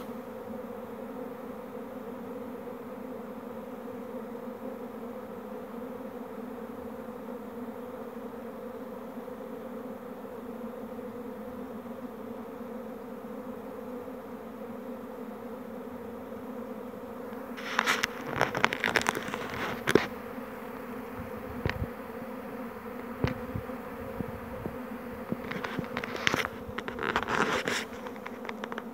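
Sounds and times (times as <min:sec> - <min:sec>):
bee swarm buzzing: 0:00.0 - 0:28.9
crackling rustling noise: 0:17.3 - 0:28.9.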